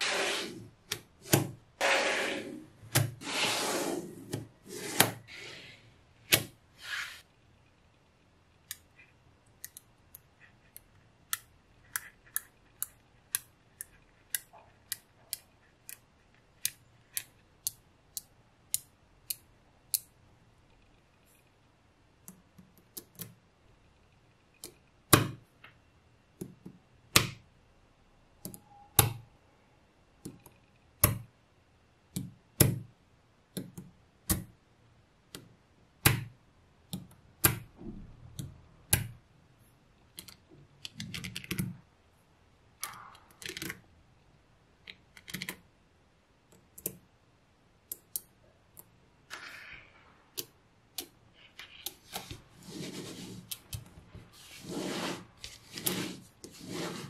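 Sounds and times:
balls rubbing and sliding: 0.0s - 6.0s, 6.7s - 7.3s, 51.3s - 57.0s.

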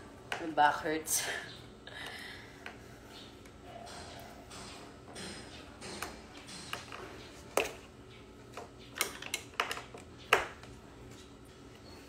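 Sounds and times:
clicks and knocks of chair parts: 8.5s - 10.8s.

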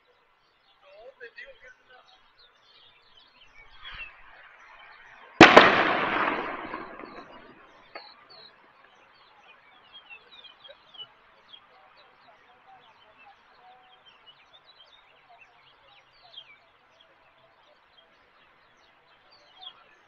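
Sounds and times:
small birds chirping: 0.0s - 20.0s
sharp bang with echo: 5.4s - 7.7s.

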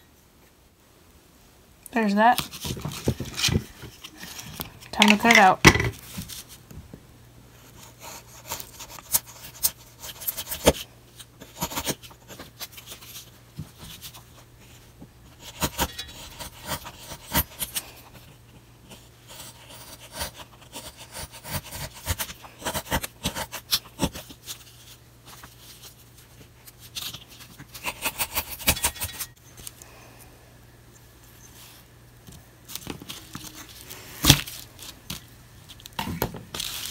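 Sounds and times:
knife scraping wood: 27.0s - 29.4s.

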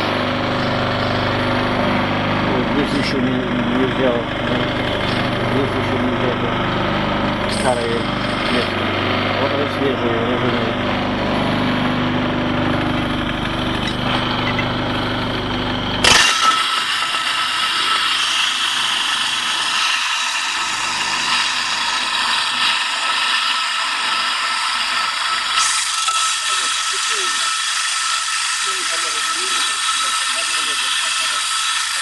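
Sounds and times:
metal scraping on abrasive stone: 16.0s - 32.0s.

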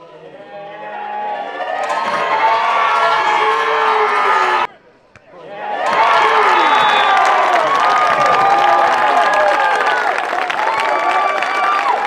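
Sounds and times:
crowd cheering and shouting: 0.0s - 4.7s, 5.3s - 12.0s
hands clapping: 5.9s - 12.0s.

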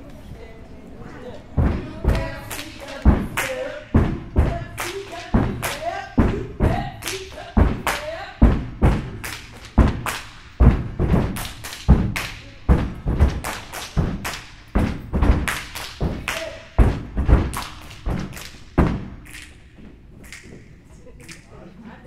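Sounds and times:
hand claps and slaps: 4.7s - 6.3s, 7.0s - 8.1s, 9.0s - 12.5s, 13.2s - 21.5s.

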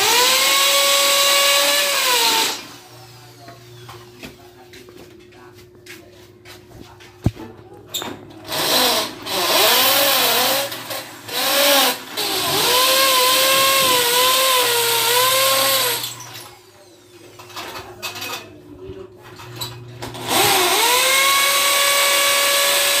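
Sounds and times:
power drill motor whining: 0.0s - 4.2s, 8.4s - 17.1s, 20.1s - 23.0s.

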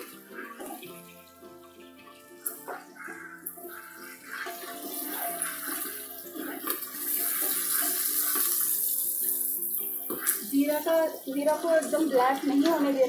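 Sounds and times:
chillies sizzling in hot oil: 0.0s - 13.0s
spoon scraping a pot: 2.5s - 8.8s.

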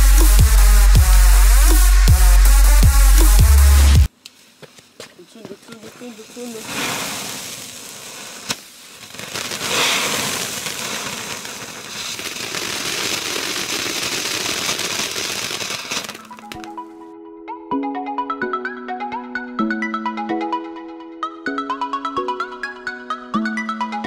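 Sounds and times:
upbeat electronic music: 0.0s - 4.1s, 16.2s - 24.0s
firework sparks hissing and crackling: 4.3s - 16.8s
sharp firework crack: 5.8s - 16.8s.

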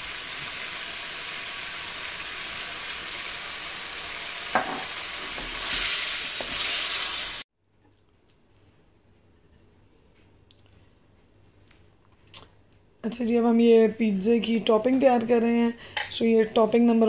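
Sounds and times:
chicken sizzling in a wok: 0.0s - 7.5s.

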